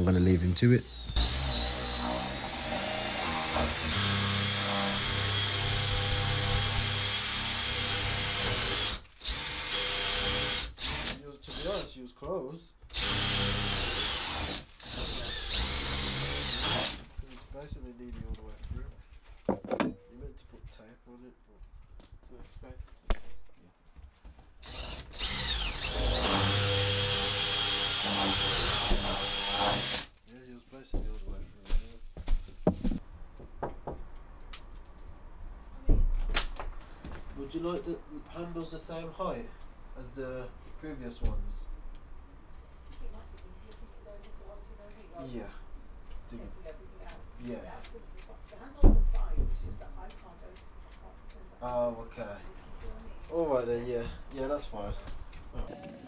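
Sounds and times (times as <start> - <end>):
cordless drill boring into wood: 0.8 - 11.9, 12.9 - 17.2, 24.6 - 30.2.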